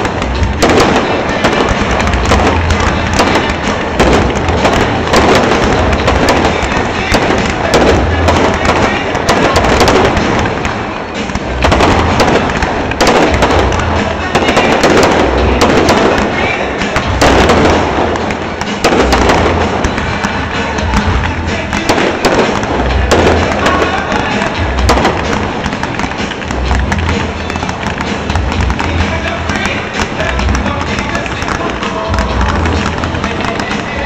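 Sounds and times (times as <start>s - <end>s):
fireworks bangs and crackling: 0.0s - 34.0s.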